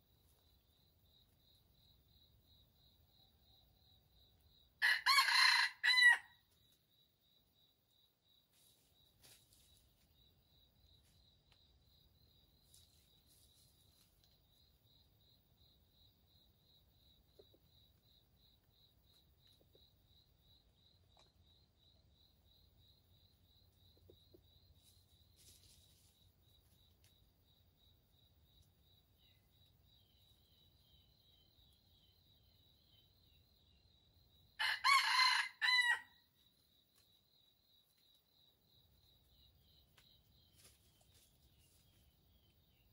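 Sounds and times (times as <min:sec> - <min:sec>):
rooster crowing: 0:04.8 - 0:06.4, 0:34.6 - 0:36.2.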